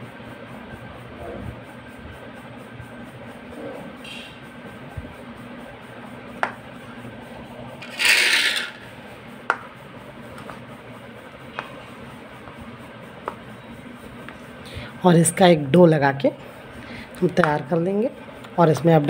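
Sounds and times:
rasping scrape: 7.8 - 8.8.

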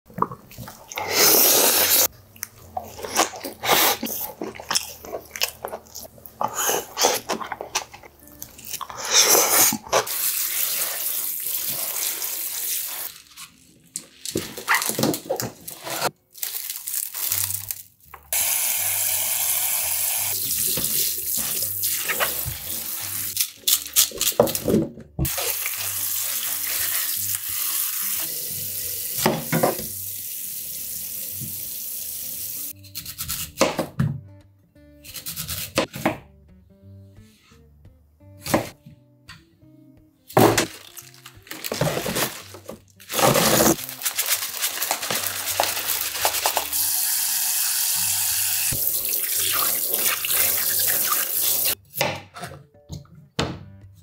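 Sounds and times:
leafy greens rustling: 40.6 - 46.8.

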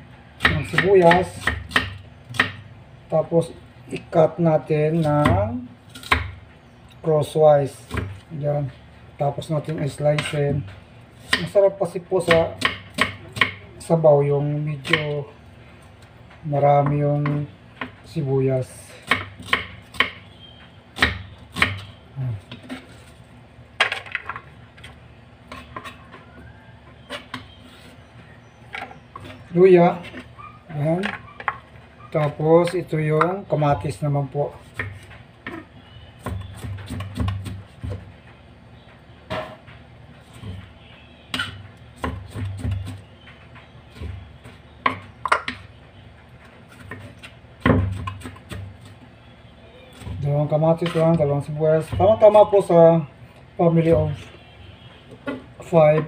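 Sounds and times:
knife chopping on wooden board: 0.4 - 2.6, 5.0 - 6.4, 12.2 - 13.6, 14.8 - 15.2, 19.0 - 20.2, 21.0 - 22.8, 34.7 - 38.1, 41.3 - 43.1, 46.7 - 48.8, 51.8 - 52.5.

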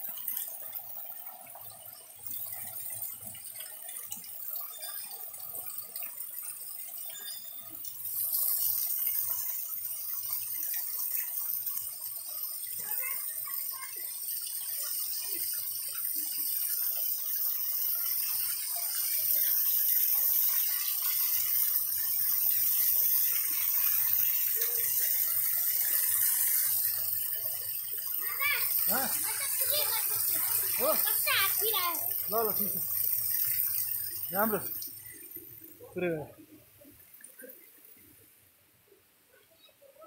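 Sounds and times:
water gushing from spouts: 0.0 - 38.2
water splashing on stone floor: 14.5 - 35.8.

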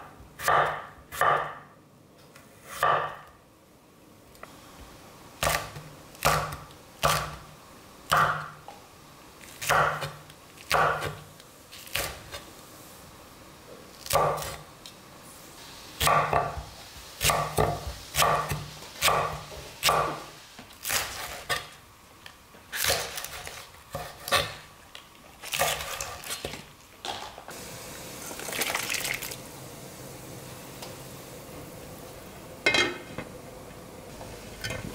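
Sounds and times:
knife chopping on wooden board: 0.4 - 1.6, 2.7 - 3.2, 9.6 - 11.2, 17.2 - 20.2.

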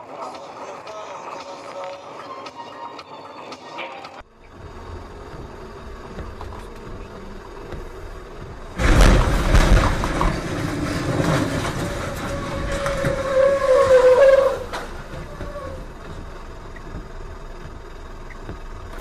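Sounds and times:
truck crash: 4.3 - 19.0
tyre noise on wet road: 4.3 - 19.0
metal crashing and grinding: 8.2 - 16.4.

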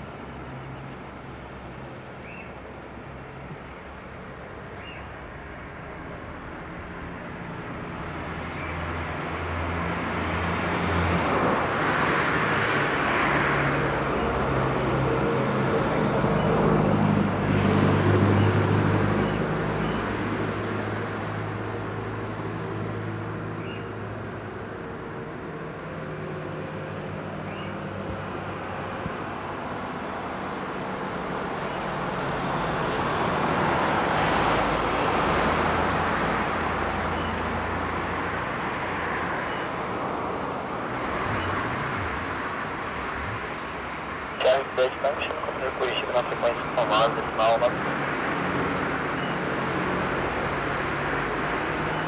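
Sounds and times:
road traffic passing: 0.0 - 52.0
distant jet engines rumbling: 31.5 - 52.0.

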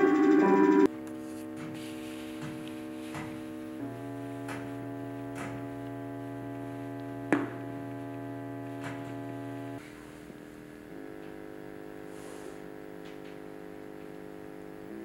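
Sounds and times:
ambient drone music: 0.0 - 0.9.

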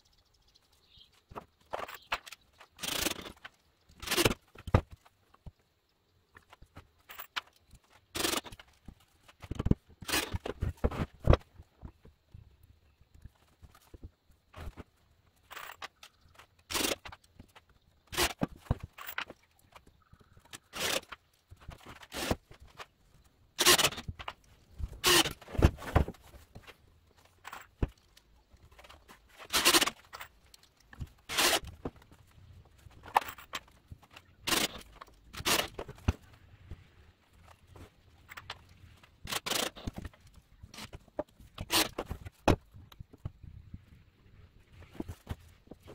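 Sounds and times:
wooden boards knocking and scraping: 23.6 - 28.1.

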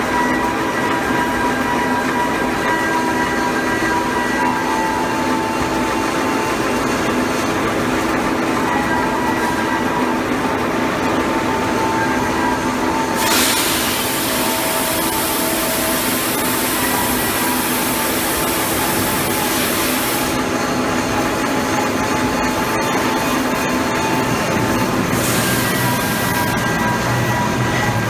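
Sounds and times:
industrial machinery drone: 0.0 - 28.0
loud hiss: 13.2 - 20.4.

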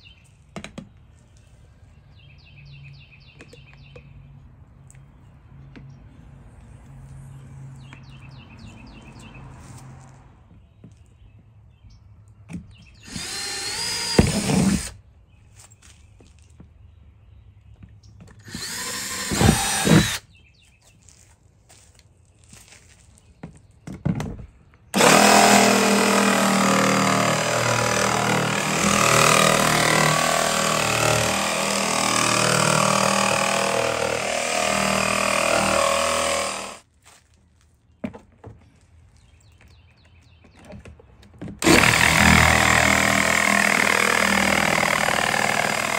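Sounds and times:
cordless drill boring into plastic: 13.0 - 15.0, 18.4 - 20.2, 25.0 - 36.8, 41.6 - 45.9.

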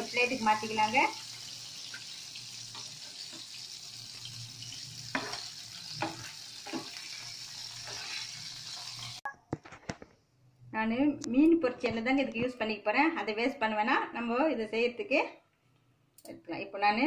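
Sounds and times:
fish sizzling in oil: 0.0 - 9.3.

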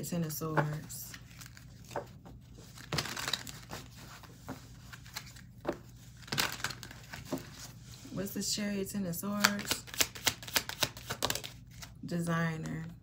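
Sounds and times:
cards being shuffled: 0.5 - 7.8, 9.4 - 12.0.

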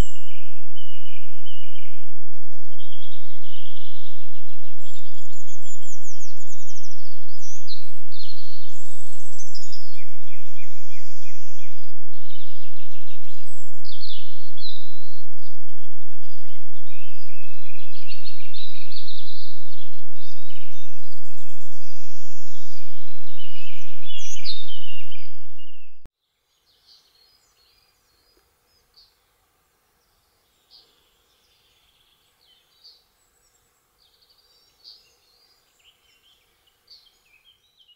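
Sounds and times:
microphone hiss: 0.0 - 37.9
songbirds chirping and trilling: 0.0 - 37.9.

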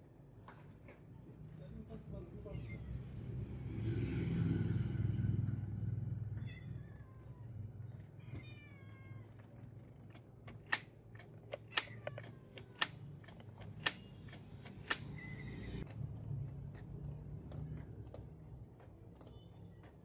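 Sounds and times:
printer sharp clicks: 12.8 - 15.1.

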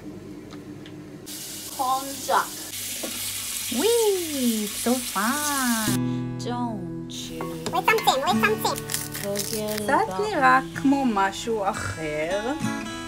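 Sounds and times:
tap water running into strainer: 1.3 - 5.8.

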